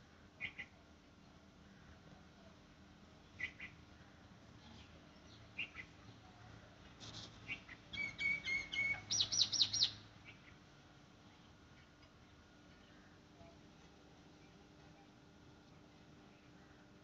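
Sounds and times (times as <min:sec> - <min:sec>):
birds chirping: 0:03.4 - 0:03.8, 0:07.5 - 0:10.6.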